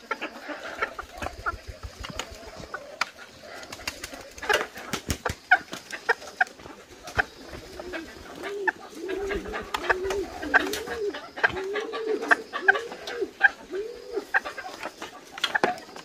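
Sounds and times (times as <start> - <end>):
roosters calling: 0.0 - 16.0.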